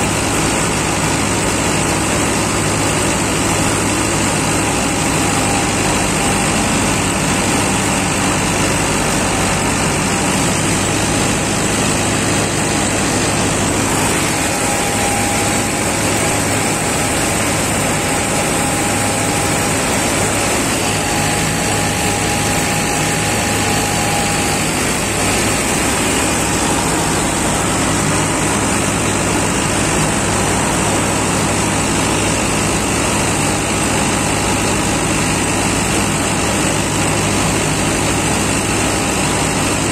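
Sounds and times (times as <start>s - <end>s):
tractor engine and reaper running: 0.0s - 39.9s.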